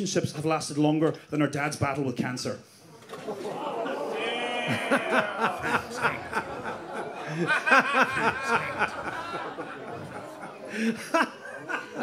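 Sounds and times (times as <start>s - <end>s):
audience laughing: 3.0s - 12.0s.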